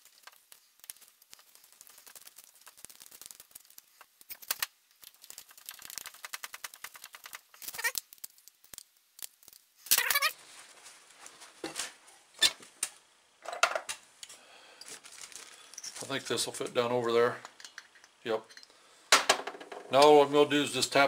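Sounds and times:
plastic bag crinkling: 0.0s - 12.0s, 14.8s - 17.1s.

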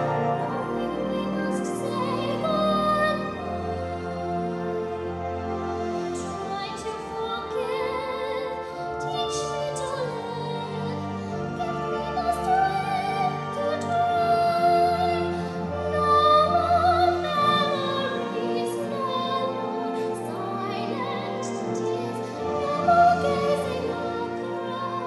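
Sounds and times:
sustained accompaniment: 0.0s - 25.0s.

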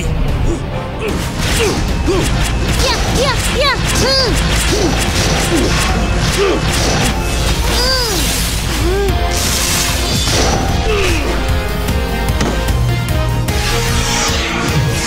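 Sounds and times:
dramatic action music: 0.0s - 15.0s
electric zap: 1.2s - 11.8s.

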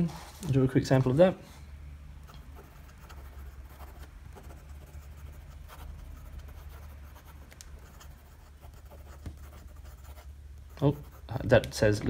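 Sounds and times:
low steady hum: 0.0s - 12.0s
fountain pen scratching paper: 2.6s - 11.3s.

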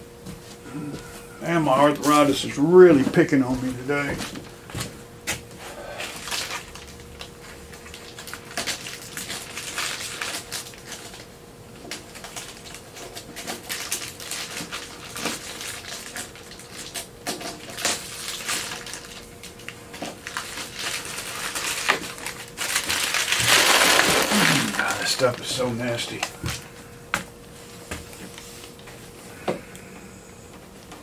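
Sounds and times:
faint steady hum: 0.0s - 31.0s
plastic film crackling and tearing: 6.0s - 26.6s.

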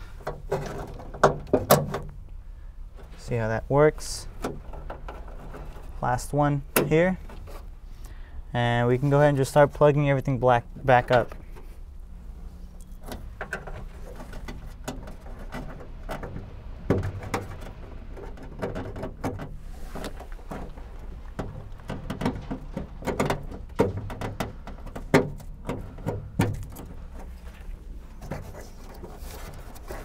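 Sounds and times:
plastic knocking on sheet metal: 21.4s - 26.8s.

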